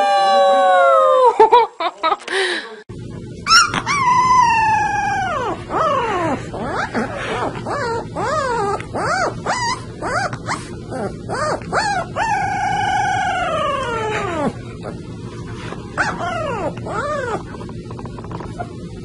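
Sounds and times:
puppy yelping and howling: 3.4s - 15.0s, 16.0s - 17.6s.

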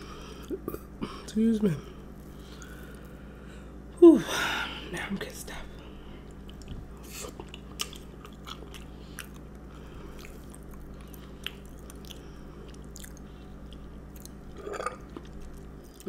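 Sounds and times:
low steady hum: 0.0s - 16.0s
chewing cookie: 2.2s - 3.2s, 6.2s - 16.0s.

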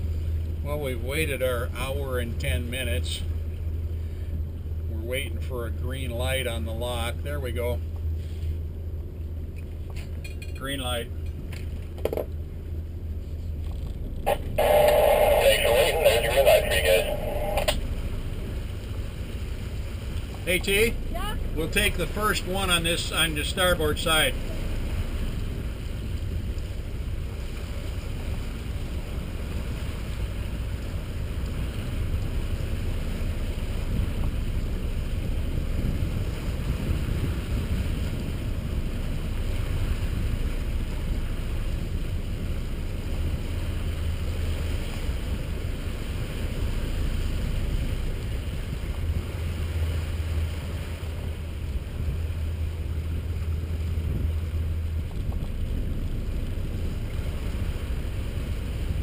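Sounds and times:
boat engines rumbling: 0.0s - 59.0s
wind noise on microphone: 31.4s - 43.7s, 50.6s - 59.0s.

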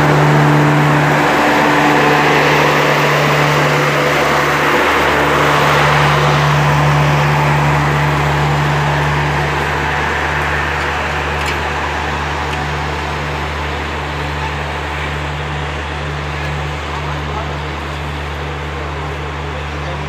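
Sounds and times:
passenger train rolling on track: 0.0s - 20.0s.

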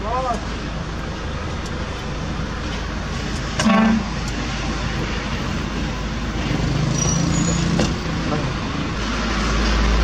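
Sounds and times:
heavy truck engine running: 0.0s - 10.0s
vehicle horn toot: 3.6s - 4.2s.

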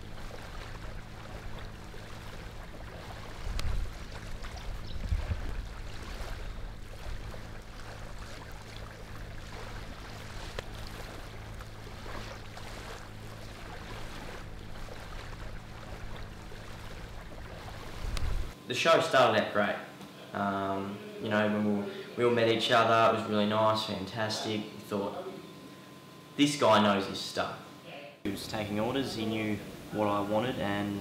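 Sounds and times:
water washing on sand: 0.0s - 18.6s
wind rumble on microphone: 0.0s - 18.6s
low hum: 0.0s - 19.2s.

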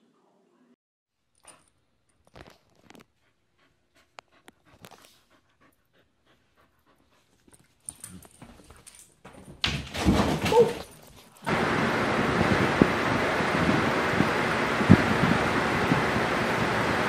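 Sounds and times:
rustling and handling noise: 1.3s - 3.2s
dog panting: 2.9s - 9.0s
wind on microphone: 11.6s - 17.0s.

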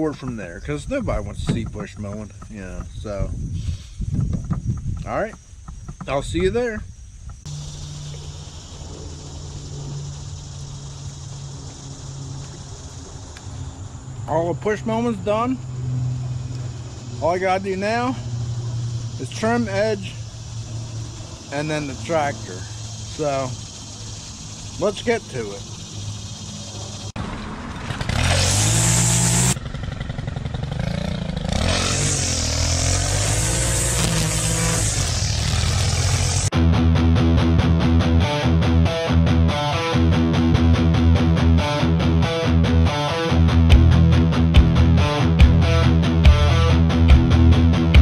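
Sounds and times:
even hiss: 2.5s - 4.2s, 16.3s - 26.9s
string trimmer engine revving: 27.2s - 36.5s
trimmer line cutting grass: 27.5s - 36.5s.

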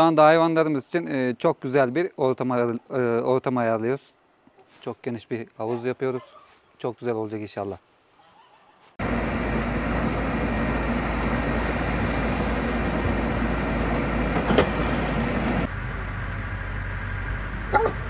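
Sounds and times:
diesel engine running: 9.0s - 18.0s.

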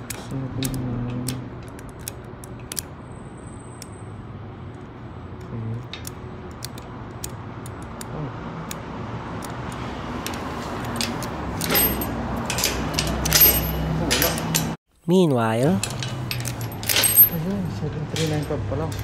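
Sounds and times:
chain jangling and clinking: 11.0s - 14.8s, 15.8s - 19.0s.

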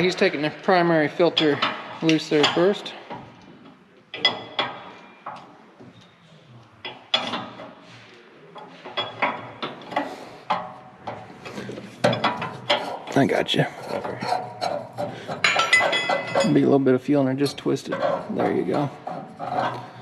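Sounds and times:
metallic clinks and taps: 15.4s - 16.6s.

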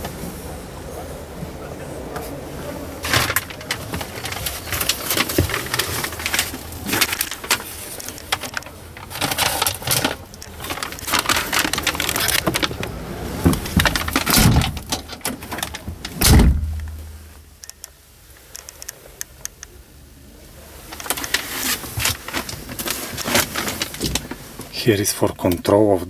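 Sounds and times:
background noise: 0.0s - 26.0s
truck door slamming shut: 13.5s - 15.1s, 16.1s - 17.3s.

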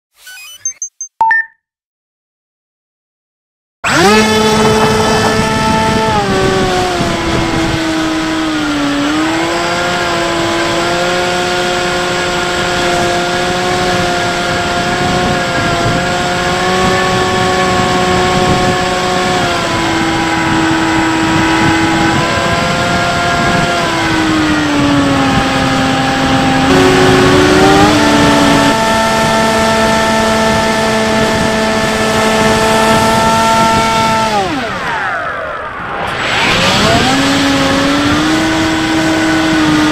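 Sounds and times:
electric motor and propeller whining: 3.8s - 39.9s
rush of air: 34.6s - 38.6s.

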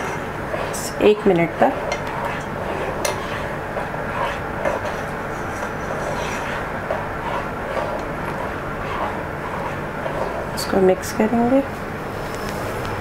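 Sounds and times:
liquid swishing from stirring: 0.0s - 12.4s.

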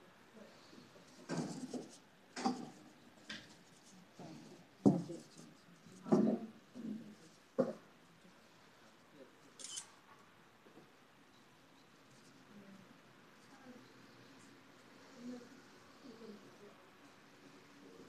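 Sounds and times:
faint scratching: 0.4s - 7.5s
brush and paper knocks and rubs: 1.1s - 6.5s.

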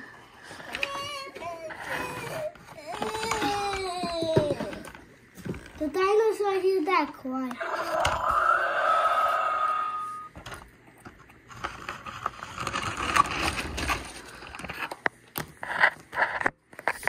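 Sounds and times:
toys scraping on tile floor: 0.0s - 3.8s, 11.4s - 15.0s.

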